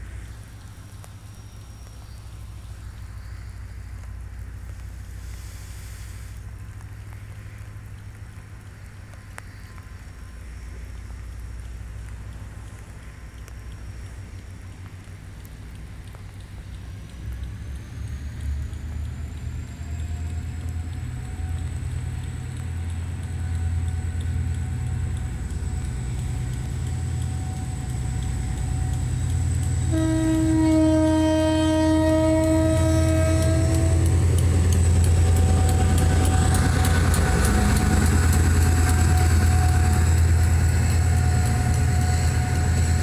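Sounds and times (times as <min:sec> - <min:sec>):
locomotive engine rumble: 0:00.0 - 0:43.0
locomotive horn blast: 0:29.8 - 0:34.7.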